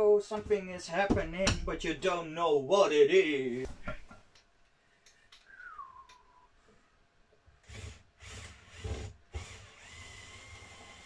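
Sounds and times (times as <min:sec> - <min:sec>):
power drill driving screws: 0:07.6 - 0:11.0.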